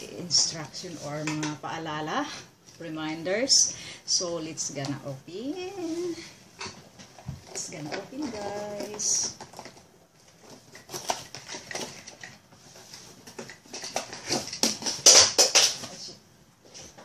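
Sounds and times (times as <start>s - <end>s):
packaging rustling: 5.7s - 17.0s.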